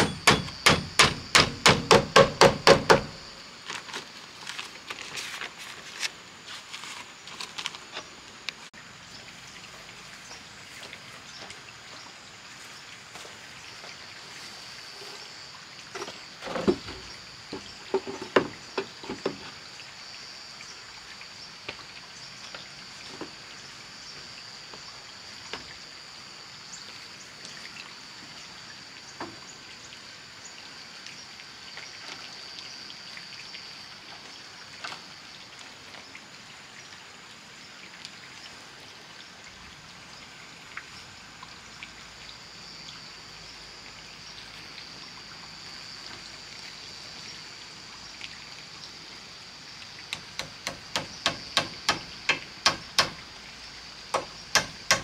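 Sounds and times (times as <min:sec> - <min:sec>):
hammer blows: 0:00.0 - 0:03.1.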